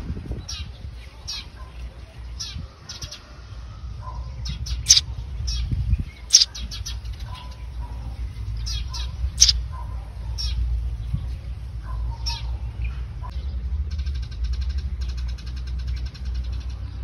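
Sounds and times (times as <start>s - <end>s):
small birds chirping: 4.0s - 13.6s.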